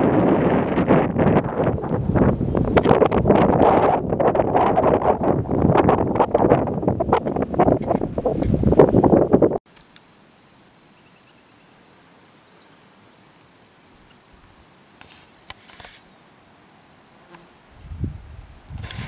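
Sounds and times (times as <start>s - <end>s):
wind buffeting microphone: 0.0s - 9.6s, 17.7s - 19.0s
faint insects buzzing: 9.7s - 19.0s.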